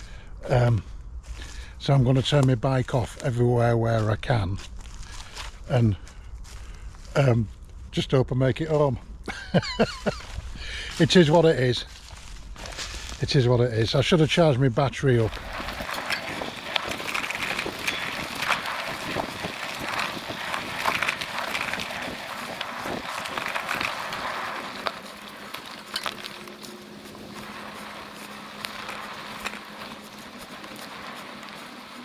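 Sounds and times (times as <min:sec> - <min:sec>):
bike tyres on dirt trail: 0:00.0 - 0:32.0
faint steady hum: 0:00.0 - 0:32.0
bike knocking and rattling: 0:15.0 - 0:32.0.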